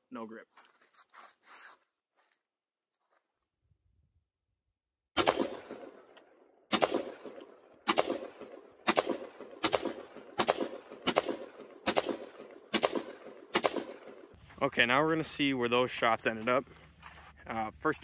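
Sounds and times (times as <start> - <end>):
rifle shots with echo: 5.2 - 14.4.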